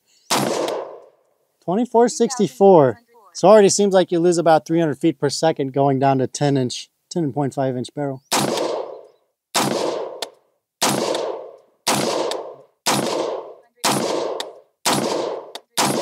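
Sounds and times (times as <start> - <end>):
pistol gunshots with ringing echo: 0.3 - 1.1, 8.3 - 16.0.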